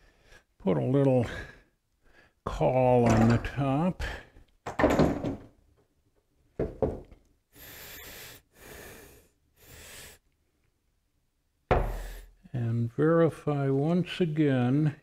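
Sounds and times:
wooden knocks and thuds: 4.7s - 5.5s, 6.6s - 7.2s, 11.7s - 12.1s.

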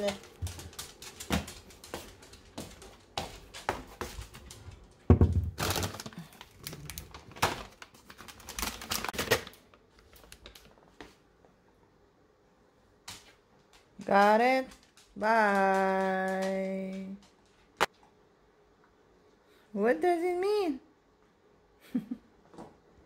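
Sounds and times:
dog claws clicking on wooden floor: 0.0s - 5.1s, 13.0s - 17.9s
plastic bag crinkling: 5.2s - 10.9s.

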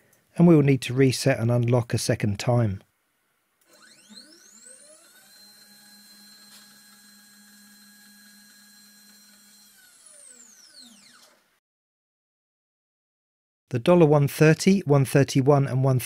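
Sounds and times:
stepper motor whine: 3.6s - 11.4s.

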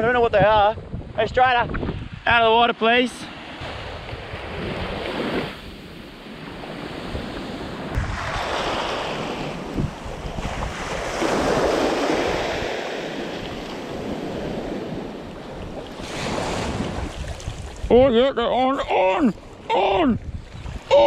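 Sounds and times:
wind buffeting microphone: 0.0s - 2.5s, 3.5s - 21.0s
small waves washing on beach: 2.8s - 18.0s.

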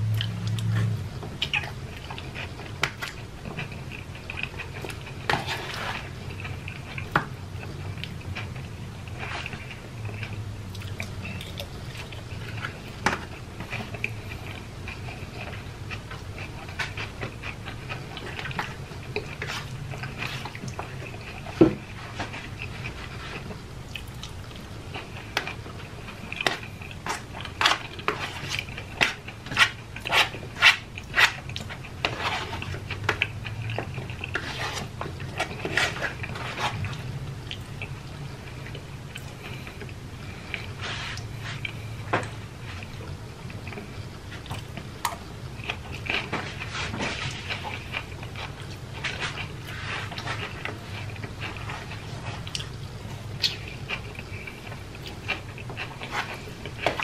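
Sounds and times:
person chewing and mouth smacks: 0.0s - 57.0s.

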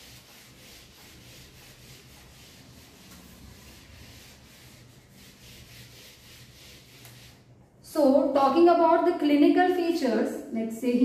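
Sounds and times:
eraser rubbing on whiteboard: 0.0s - 7.6s.

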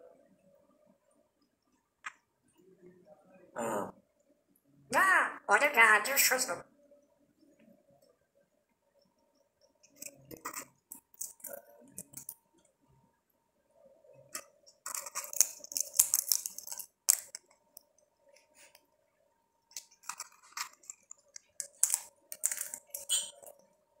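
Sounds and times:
parrot cracking seeds: 9.8s - 12.4s, 14.4s - 17.6s, 19.7s - 23.6s.

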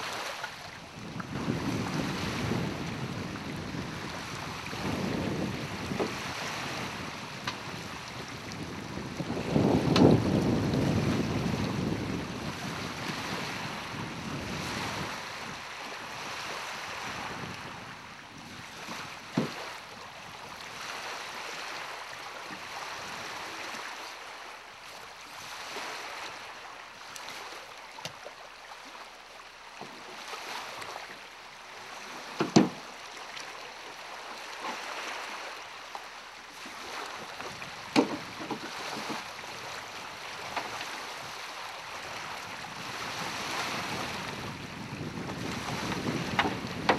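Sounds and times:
wind on microphone: 0.0s - 24.0s, 36.8s - 46.9s
small waves lapping: 0.0s - 46.9s
wooden mast knocks: 19.3s - 19.6s, 32.3s - 32.8s, 37.4s - 39.2s, 45.9s - 46.9s.

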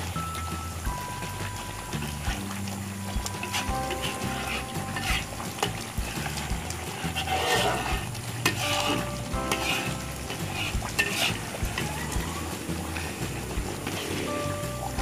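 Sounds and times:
sauce sizzling: 0.0s - 15.0s
metal spatula scraping a wok: 3.4s - 11.9s.

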